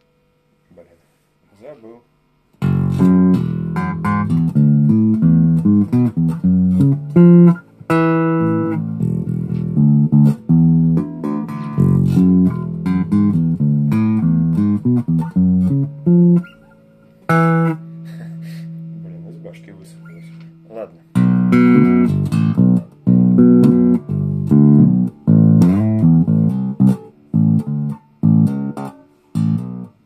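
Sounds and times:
plucked bass guitar notes: 2.6 - 30.0.

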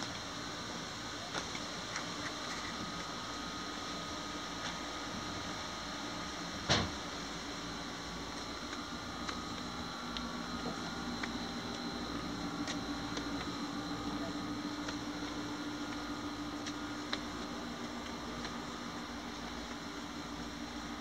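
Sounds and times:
steady low hum and hiss: 0.0 - 21.0.

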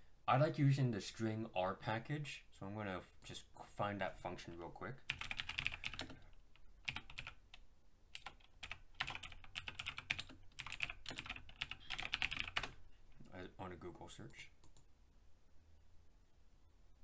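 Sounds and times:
typing on computer keyboard: 5.1 - 7.6, 8.2 - 12.8.

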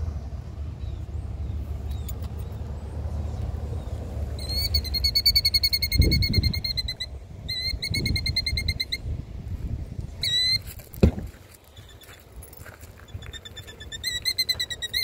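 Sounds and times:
bird trilling alarm call: 3.8 - 9.1, 10.2 - 10.6, 13.1 - 15.0
thump: 11.0 - 11.4.

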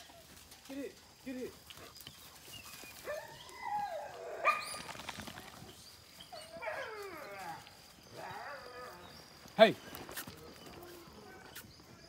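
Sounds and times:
hounds yelping and crying: 2.5 - 11.9.

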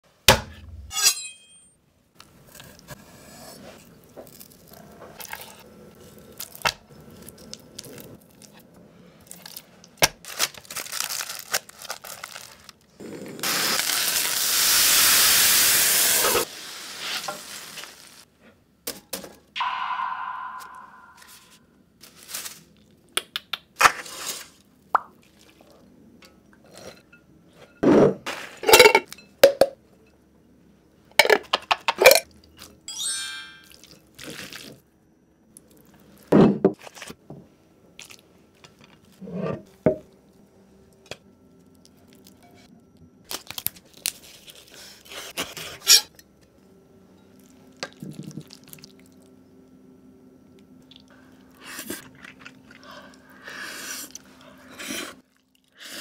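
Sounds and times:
aluminium foil crumpling: 9.3 - 13.0, 22.0 - 22.9, 43.3 - 45.3.

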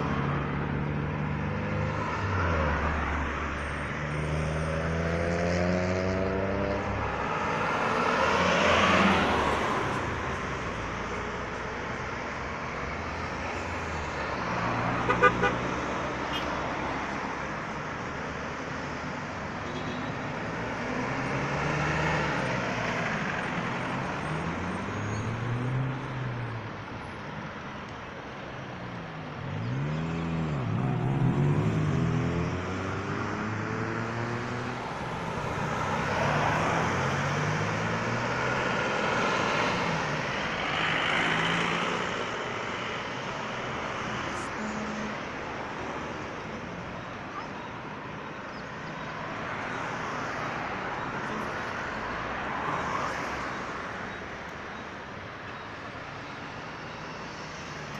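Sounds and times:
car engines passing: 0.0 - 57.9
car horn toots: 15.1 - 15.6.

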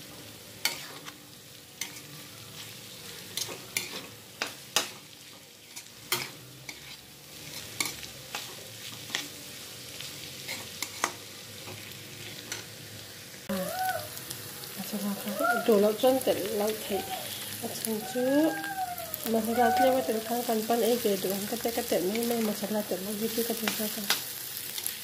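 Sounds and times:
low frying hiss: 0.0 - 25.0
metal spatula scraping a wok: 0.6 - 1.2, 1.8 - 9.4, 10.3 - 11.2.

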